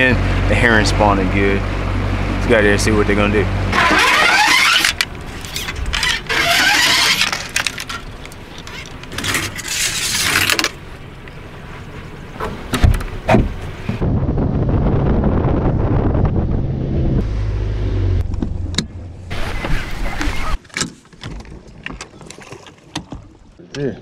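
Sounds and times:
fishing rods scraping: 3.7 - 10.8, 19.3 - 23.2
reels rattling: 3.7 - 10.8.

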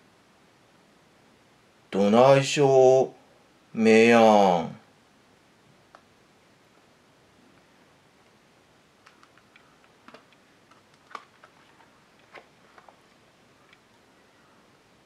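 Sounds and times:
book page turning: 9.0 - 13.2.

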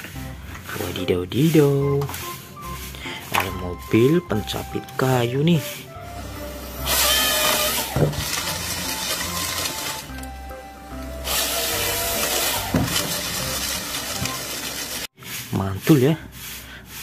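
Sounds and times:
background music: 0.0 - 15.1
chainsaw cutting through log: 6.6 - 10.2, 11.2 - 15.1.

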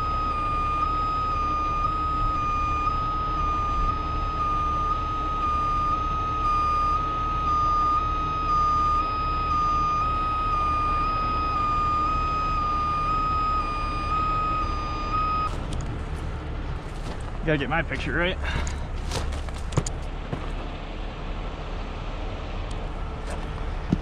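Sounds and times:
high-pitched electronic alarm tone: 0.0 - 15.5
diesel truck engine rumble: 0.0 - 24.0.

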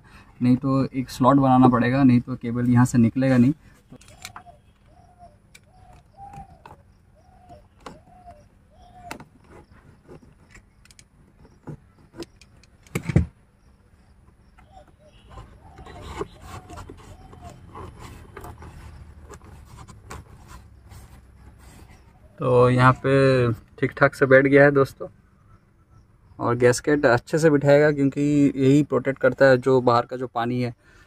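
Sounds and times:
hands rubbing rubber weatherstrip: 15.3 - 22.2.

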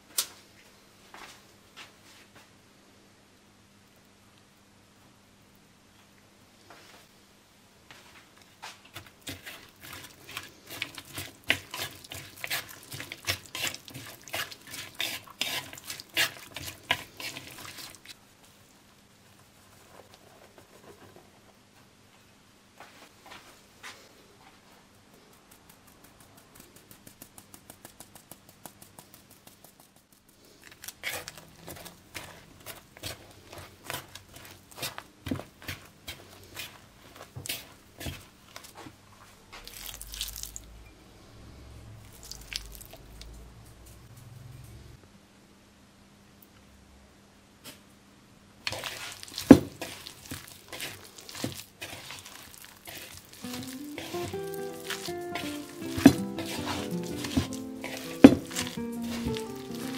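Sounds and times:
chopsticks stirring in wooden bowl: 8.9 - 18.2, 26.4 - 38.8, 48.6 - 59.9
dough squishing: 8.9 - 18.2, 25.3 - 39.0, 39.6 - 40.6, 42.1 - 43.1, 48.6 - 59.9
background music: 53.4 - 59.9.

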